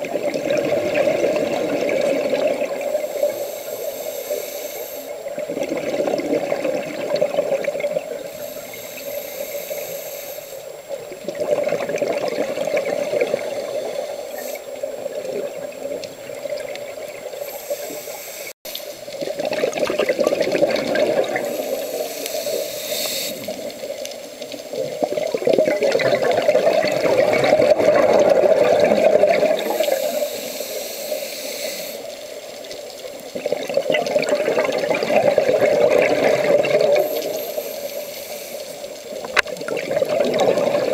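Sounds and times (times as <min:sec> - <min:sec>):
exhaled bubbles rushing: 0:00.0 - 0:03.4, 0:05.2 - 0:08.4, 0:11.0 - 0:14.1, 0:19.0 - 0:22.1, 0:24.6 - 0:30.3, 0:32.9 - 0:37.6, 0:38.9 - 0:40.9
scuba regulator breathing underwater: 0:00.3 - 0:10.8, 0:11.4 - 0:15.0, 0:17.0 - 0:19.1, 0:19.7 - 0:24.0, 0:26.0 - 0:32.4, 0:34.2 - 0:39.2.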